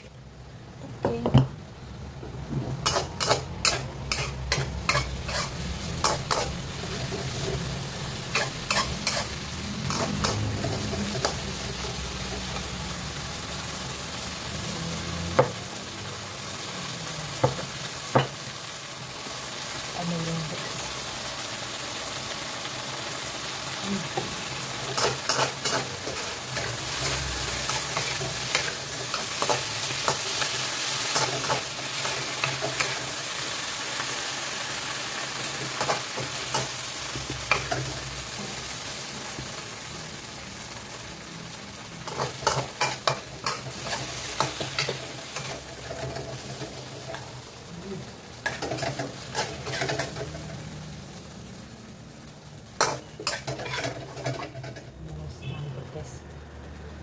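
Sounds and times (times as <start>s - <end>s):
food sizzling in a wok: 0.0s - 57.0s
metal spatula scraping wok: 2.7s - 12.8s, 24.2s - 33.4s, 42.0s - 47.4s, 48.4s - 50.8s, 52.7s - 55.0s.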